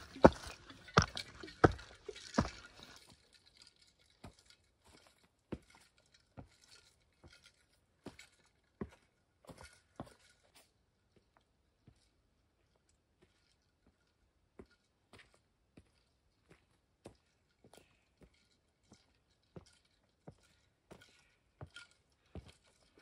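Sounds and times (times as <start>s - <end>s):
footsteps on rocks and dry leaves: 0.0s - 3.1s.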